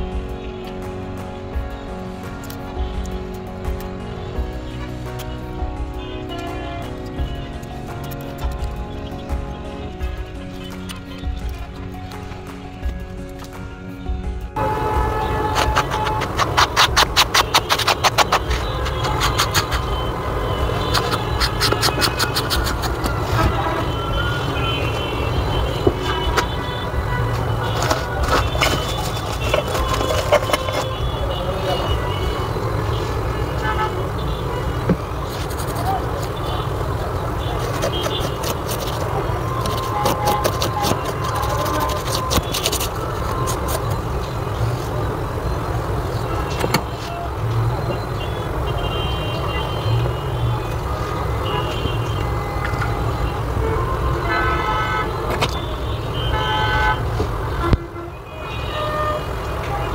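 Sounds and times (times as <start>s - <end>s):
road traffic rumble: 0.0s - 59.9s
scraping clicks: 15.5s - 20.0s, 20.7s - 23.5s, 27.3s - 31.0s, 37.5s - 44.0s.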